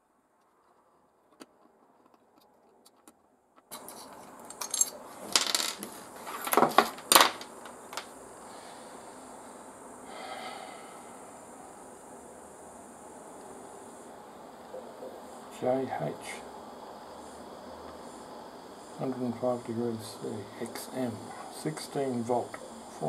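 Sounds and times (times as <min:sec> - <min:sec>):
steady low hiss: 0:00.0 - 0:23.0
small objects clattering on workbench: 0:03.7 - 0:08.1.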